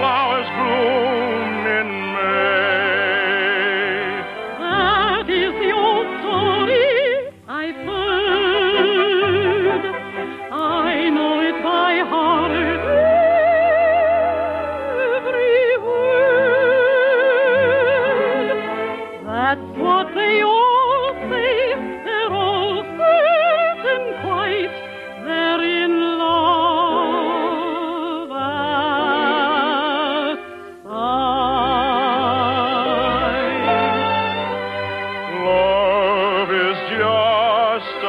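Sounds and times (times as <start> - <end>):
operatic singing: 0.0 - 38.0
orchestra: 0.0 - 38.0.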